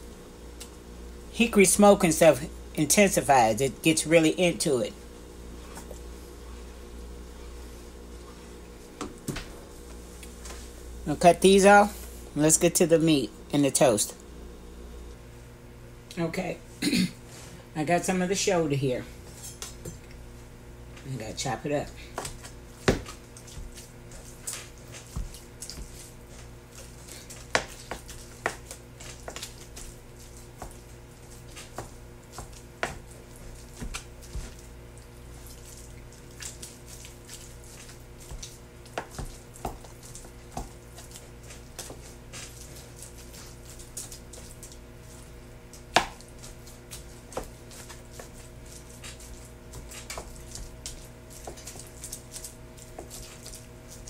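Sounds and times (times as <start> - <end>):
steady low hum: 0.0 - 54.0
knife chopping on cutting board: 22.2 - 23.8, 45.9 - 46.2.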